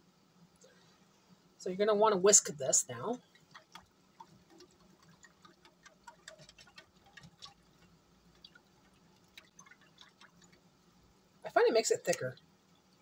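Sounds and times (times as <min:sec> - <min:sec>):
whisk clicking against a pan: 0:03.3 - 0:10.6.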